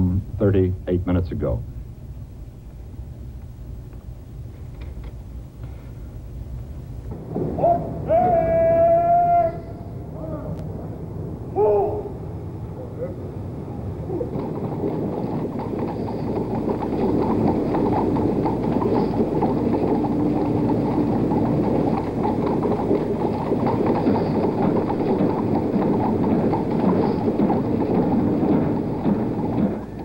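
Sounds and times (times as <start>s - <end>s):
marching footsteps: 3.4s - 10.9s, 14.1s - 30.0s
horse hooves clip-clopping: 14.1s - 30.0s.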